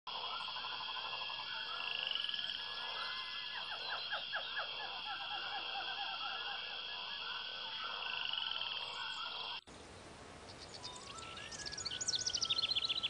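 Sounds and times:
fast pulsed animal calls: 0.1 - 9.7.

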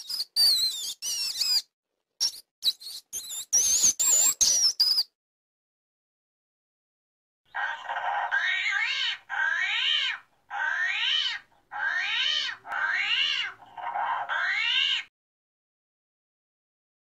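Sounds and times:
small animal high-pitched calls: 7.6 - 15.1.

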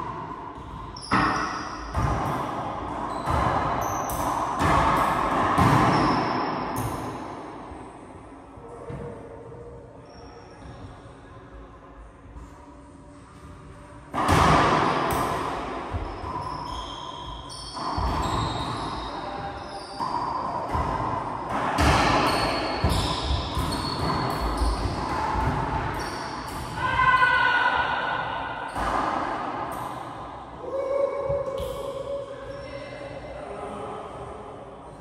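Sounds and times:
shoe squeaks: 0.6 - 2.0, 3.0 - 4.4, 5.8 - 6.8, 10.0 - 11.1, 15.9 - 21.0, 22.2 - 27.6.

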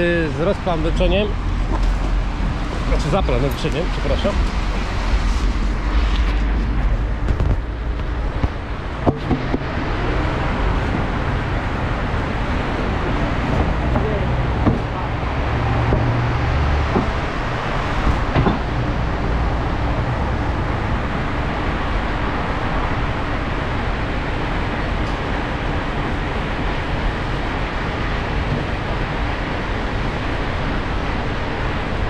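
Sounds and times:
road noise: 0.0 - 32.0
truck engine drone: 0.0 - 32.0
short knocks: 13.5 - 15.0.

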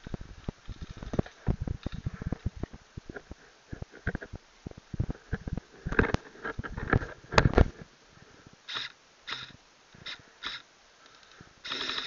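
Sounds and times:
rustling and knocks of twigs: 0.0 - 9.0.

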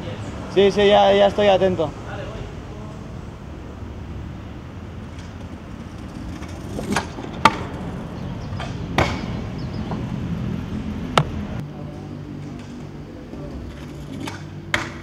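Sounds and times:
scooter wheels rolling: 4.6 - 11.6, 12.3 - 15.0
scooter clacking on ground: 5.0 - 10.1, 12.4 - 15.0.

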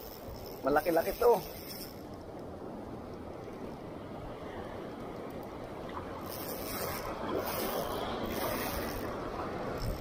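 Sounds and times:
ocean surf sloshing: 0.0 - 10.0.

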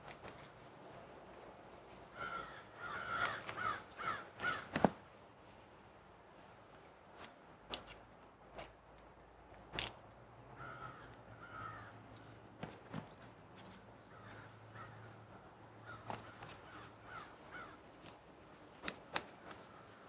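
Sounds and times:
clicks of bag fittings: 7.2 - 10.2
bird calling: 14.0 - 17.8.

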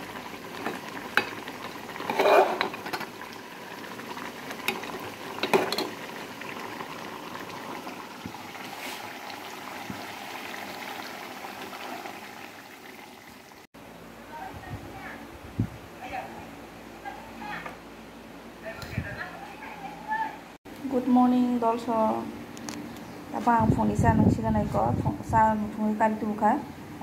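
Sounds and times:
food bubbling in a pot: 0.0 - 13.7
metal ladle scraping a pot: 2.0 - 3.1.

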